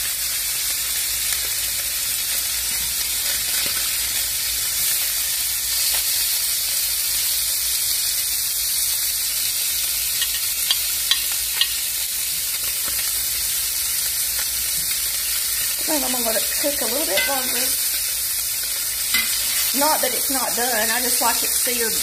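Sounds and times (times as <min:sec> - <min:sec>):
fish sizzling in a pan: 0:00.0 - 0:22.0
metal spatula clicking on pan: 0:10.2 - 0:11.8, 0:17.2 - 0:17.6.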